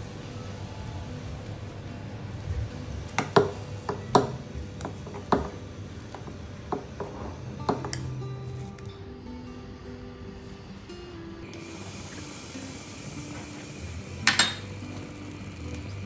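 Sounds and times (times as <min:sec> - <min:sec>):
metal spoon clinking glass bowl: 0:14.2 - 0:14.8.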